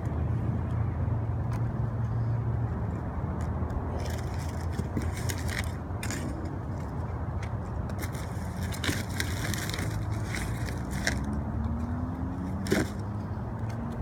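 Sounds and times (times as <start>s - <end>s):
packaging rustling and crinkling: 8.0s - 11.3s.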